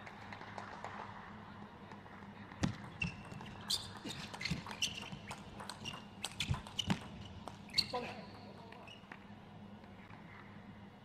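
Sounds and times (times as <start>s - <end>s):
shoe squeaks: 3.0s - 9.1s.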